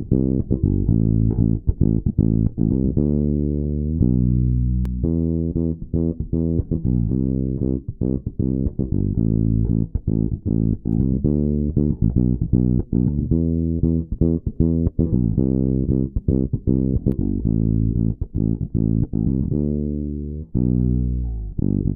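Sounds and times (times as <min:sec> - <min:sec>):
electric bass plucked notes: 0:00.0 - 0:21.9.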